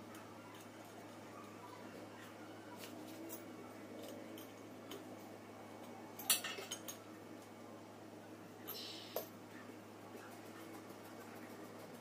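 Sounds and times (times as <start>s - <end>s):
metal tools clinking: 6.2s - 7.1s.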